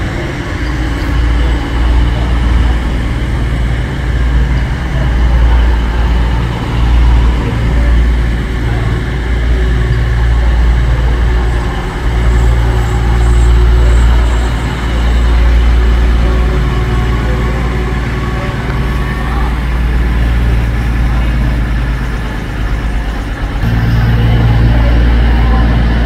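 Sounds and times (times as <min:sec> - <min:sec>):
diesel train passing: 0:00.0 - 0:26.0.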